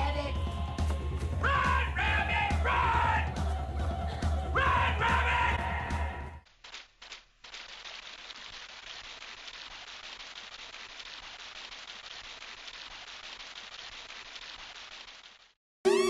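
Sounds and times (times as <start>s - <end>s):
film soundtrack crackling hiss: 6.4s - 15.6s.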